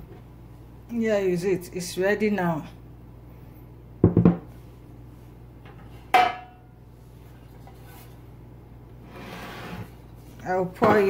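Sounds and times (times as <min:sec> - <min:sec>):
soft scraping: 0:07.0 - 0:08.3, 0:09.0 - 0:10.4.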